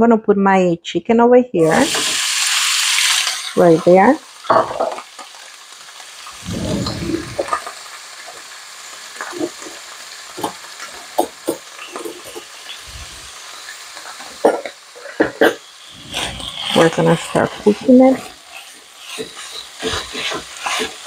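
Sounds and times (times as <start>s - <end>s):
chicken sizzling in oil: 1.6s - 21.0s
low rumble: 6.4s - 7.5s.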